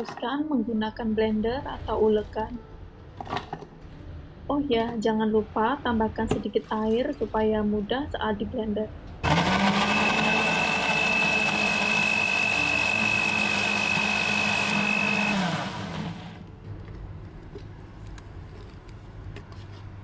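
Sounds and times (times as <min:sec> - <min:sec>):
blender motor running: 0:09.2 - 0:16.4.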